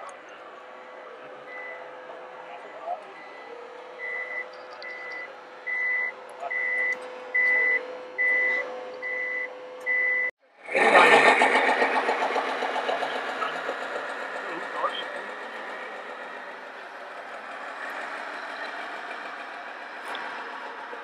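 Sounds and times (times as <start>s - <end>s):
high reversing beeps: 3.2s - 10.3s
rough steady noise: 10.4s - 21.0s.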